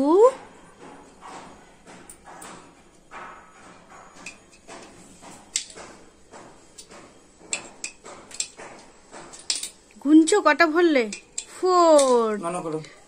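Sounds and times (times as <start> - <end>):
coins clinking into money bank: 9.3 - 9.8.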